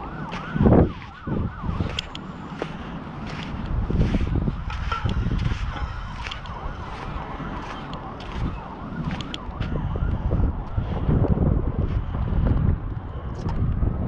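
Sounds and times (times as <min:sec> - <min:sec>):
faint warbling siren-like tone: 0:00.0 - 0:11.2
wind buffeting microphone: 0:00.0 - 0:14.0.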